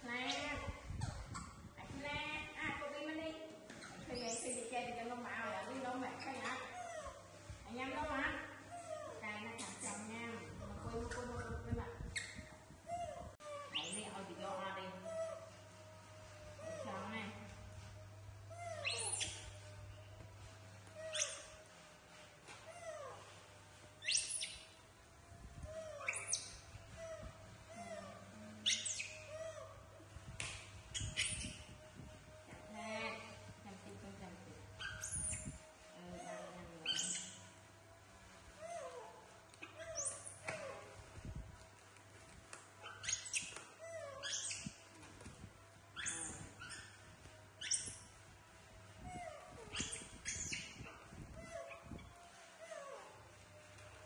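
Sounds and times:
baby monkeys squeaking: 0:00.1 - 0:02.9, 0:03.7 - 0:15.5, 0:18.5 - 0:19.8, 0:20.9 - 0:21.8, 0:24.0 - 0:24.8, 0:25.6 - 0:29.8, 0:30.4 - 0:31.9, 0:34.7 - 0:37.6, 0:38.6 - 0:41.0, 0:42.8 - 0:48.2, 0:49.0 - 0:53.1.

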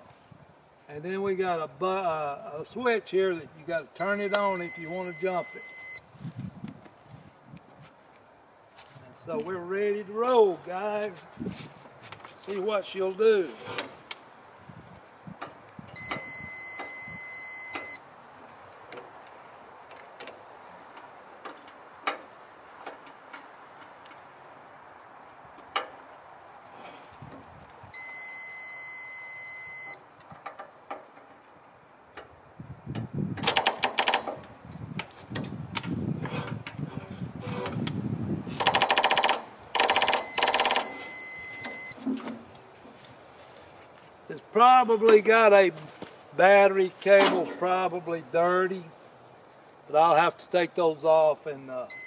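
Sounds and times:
long electronic beep: 0:04.0 - 0:06.1, 0:16.0 - 0:18.0, 0:28.0 - 0:30.0, 0:39.8 - 0:42.0
starter motor clicking: 0:38.6 - 0:41.0.

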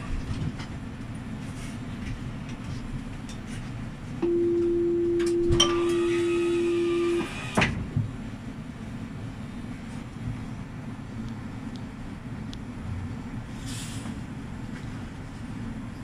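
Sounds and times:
tram low hum: 0:00.0 - 0:16.0
higher ringing tone: 0:04.2 - 0:07.3
door warning buzzer: 0:04.2 - 0:07.6.

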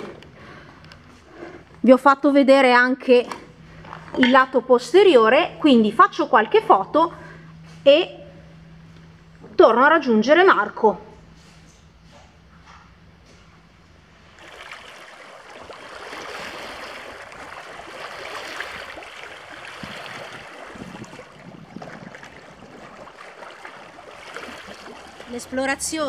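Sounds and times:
small waves lapping over pebbles: 0:14.4 - 0:25.8.

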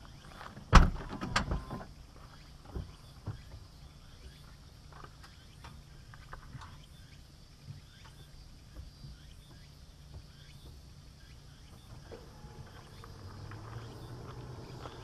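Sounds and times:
car exhaust idling: 0:10.3 - 0:15.0.

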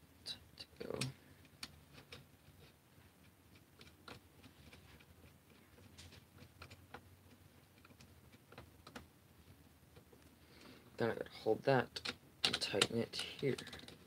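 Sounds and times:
quiet room hum: 0:00.0 - 0:14.0
small plastic clicks: 0:11.9 - 0:14.0.

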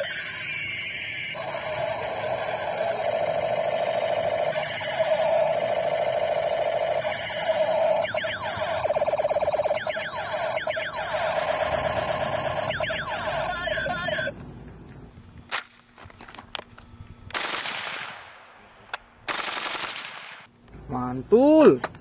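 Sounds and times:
toy rifle warbling siren tone: 0:00.0 - 0:14.3
toy laser sweeps and pulses: 0:06.5 - 0:13.9.

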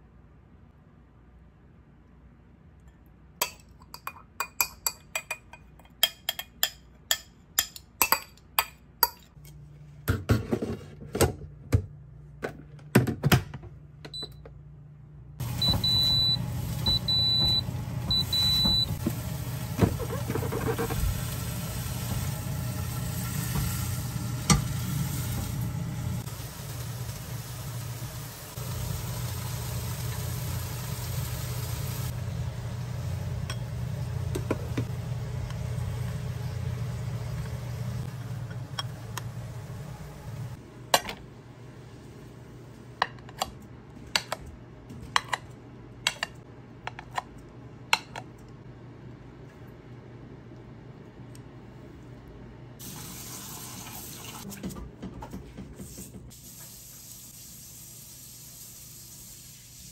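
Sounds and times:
rice cooker high beeps: 0:15.4 - 0:19.0.

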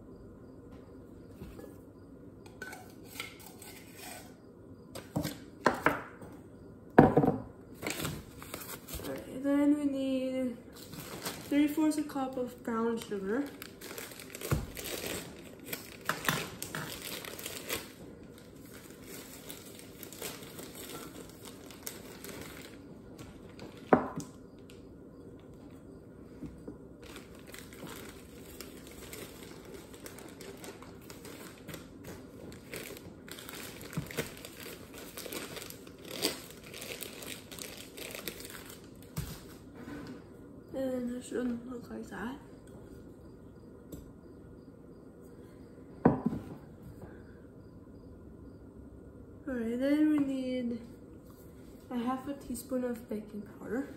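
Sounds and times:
plastic bag crinkling: 0:10.7 - 0:24.7, 0:27.0 - 0:39.7.

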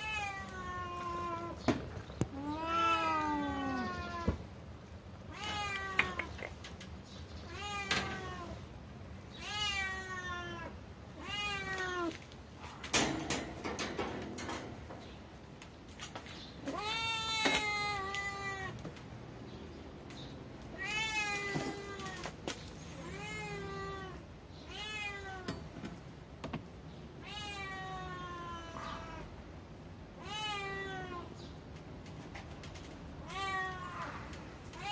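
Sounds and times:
cat meowing: 0:02.3 - 0:04.4, 0:27.2 - 0:29.3.

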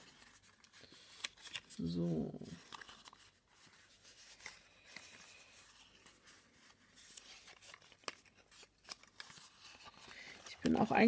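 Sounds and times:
cardstock rustling and creasing: 0:00.0 - 0:11.0.

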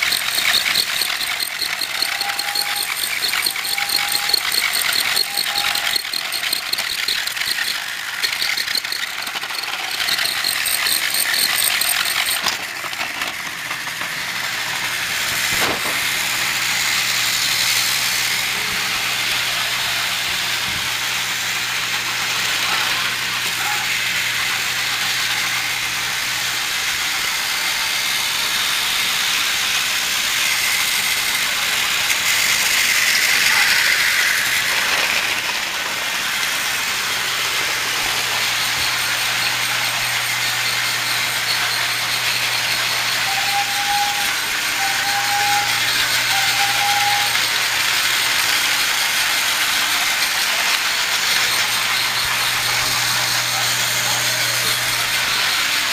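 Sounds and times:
short tones: 0:00.0 - 0:12.5
toy train motor whirring: 0:00.0 - 0:55.9.

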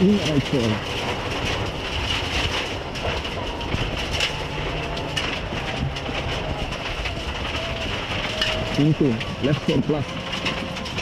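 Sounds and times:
gravel rattling against car: 0:00.0 - 0:11.0
rally car engine and road noise: 0:00.0 - 0:11.0.

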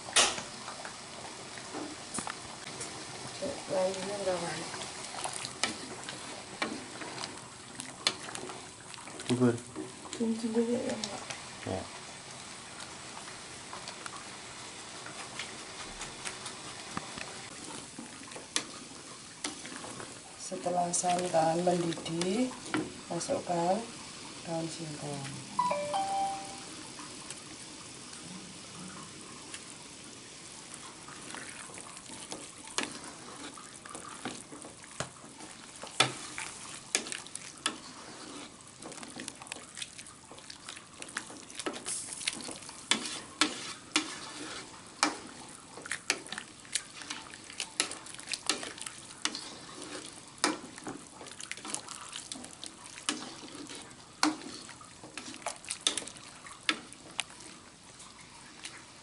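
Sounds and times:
coconut milk bubbling: 0:00.0 - 0:14.2, 0:16.3 - 0:23.2, 0:27.4 - 0:59.0
spatula knocking and scraping pan: 0:41.6 - 0:45.3.

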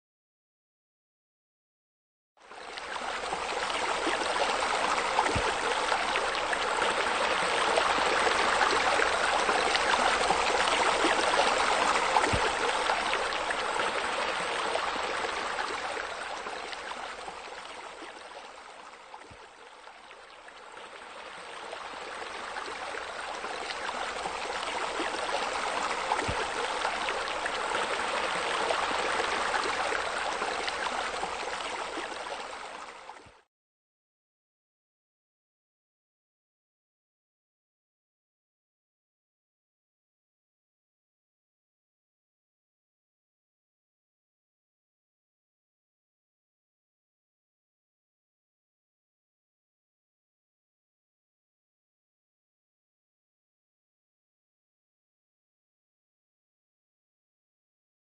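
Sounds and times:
running water rushing: 0:02.7 - 0:18.9, 0:20.9 - 0:33.1.

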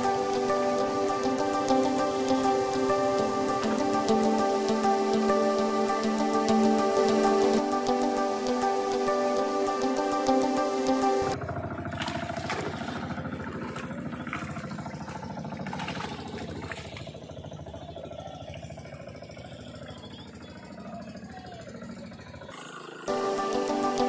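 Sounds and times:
music with rain-like patter: 0:00.0 - 0:11.4, 0:23.1 - 0:24.0
small boat engine chugging: 0:00.0 - 0:24.0.

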